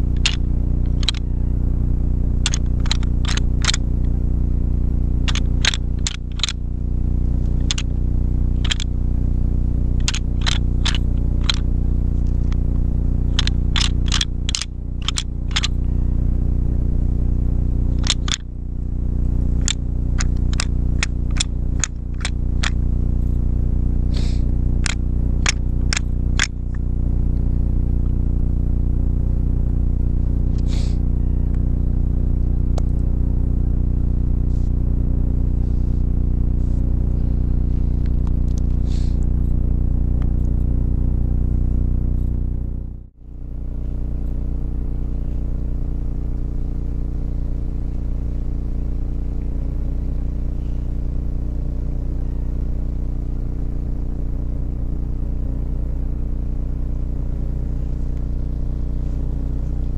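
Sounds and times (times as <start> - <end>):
loud low hum: 0.0 - 59.9
sharp clacks and clicks: 0.1 - 1.2, 2.4 - 4.1, 5.3 - 6.6, 7.6 - 7.9, 8.6 - 8.9, 10.0 - 11.6, 13.3 - 15.8, 17.9 - 18.5, 19.6 - 22.8, 24.8 - 26.8.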